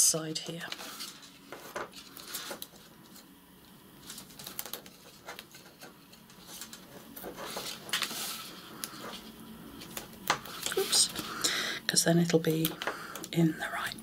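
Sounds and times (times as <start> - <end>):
card rustling and tapping: 0.5 - 3.3, 4.0 - 11.3.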